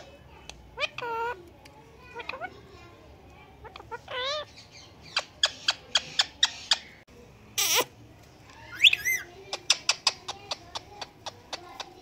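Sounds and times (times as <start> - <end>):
parakeet calling: 0.8 - 1.4, 3.6 - 7.0, 8.7 - 12.0.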